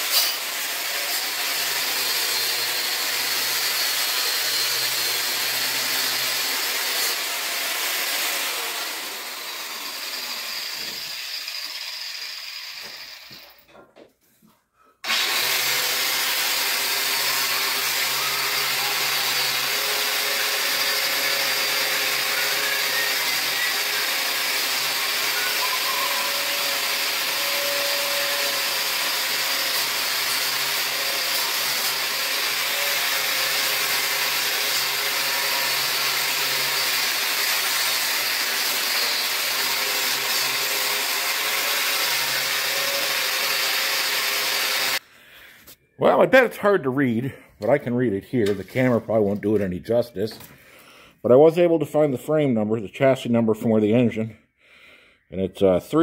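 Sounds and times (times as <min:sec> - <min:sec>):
angle grinder on steel: 0:00.0 - 0:13.6, 0:15.0 - 0:45.0.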